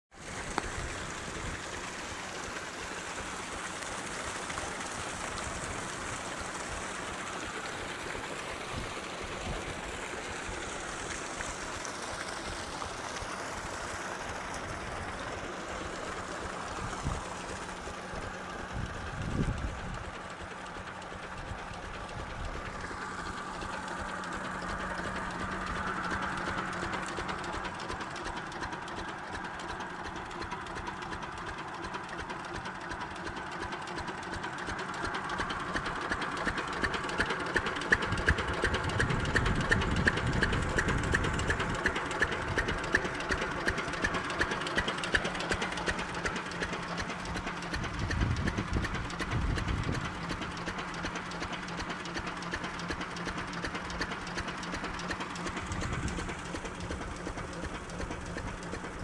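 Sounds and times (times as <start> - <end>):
diesel engine running: 0.1 - 59.0
water gushing and splashing: 0.2 - 31.7.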